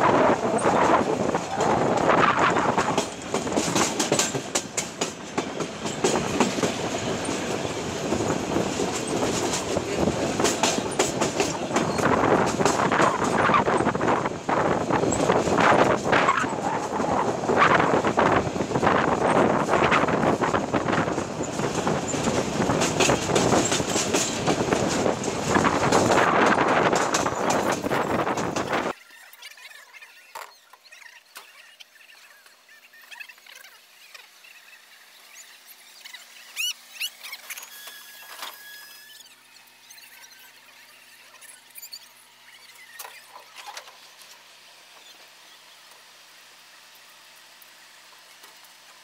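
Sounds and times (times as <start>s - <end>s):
train rumble and rattle: 0.0s - 30.0s
wheels clicking over rail joints: 0.0s - 49.0s.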